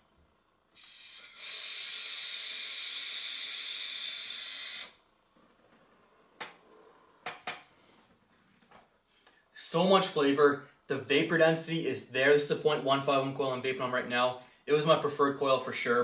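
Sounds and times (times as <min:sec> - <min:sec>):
vape tank hissing: 0:00.8 - 0:05.0.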